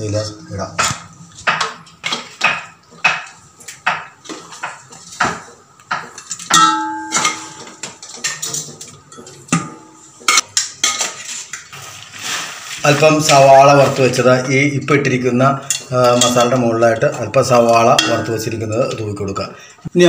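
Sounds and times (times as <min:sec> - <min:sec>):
ringing clang: 0:06.5 - 0:07.8.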